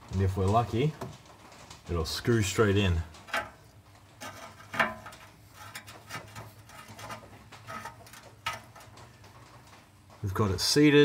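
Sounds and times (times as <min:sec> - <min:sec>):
small metallic clicks and scrapes: 0:03.0 - 0:10.2.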